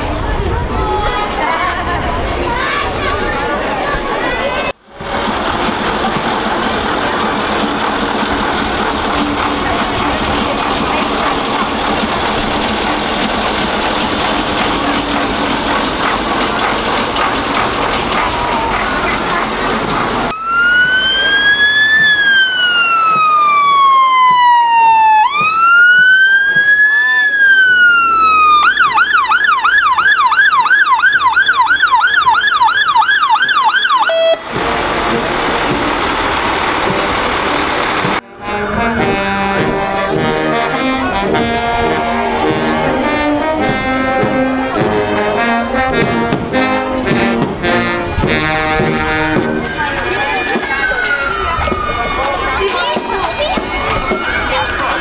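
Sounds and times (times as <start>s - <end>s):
steady noise: 4.8s - 23.1s, 34.4s - 38.2s
fire engine siren: 19.7s - 46.0s, 46.7s - 55.0s
brass band playing: 34.0s - 50.4s.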